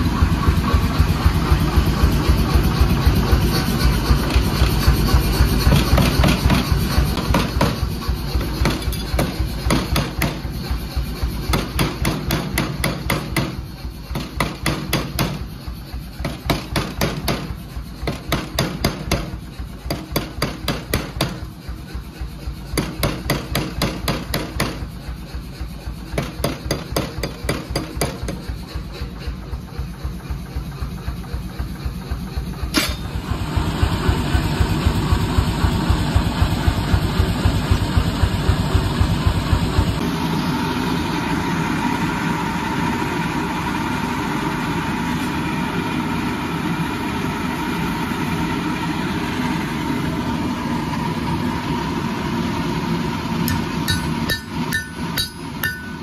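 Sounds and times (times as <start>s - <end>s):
power hammer pounding steel: 0.0s - 40.1s, 53.2s - 56.0s.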